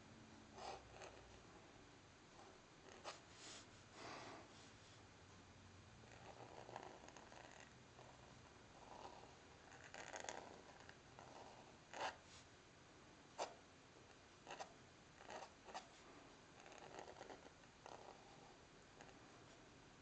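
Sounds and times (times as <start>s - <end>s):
pen nib scratching paper: 0.5s - 1.4s, 2.4s - 3.3s, 6.0s - 12.3s, 14.4s - 15.9s, 16.6s - 19.2s.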